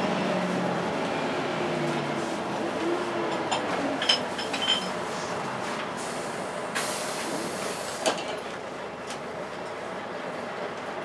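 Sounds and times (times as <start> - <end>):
bus engine and cooling fan whooshing: 0.0 - 11.0
hiss of air: 6.0 - 8.1.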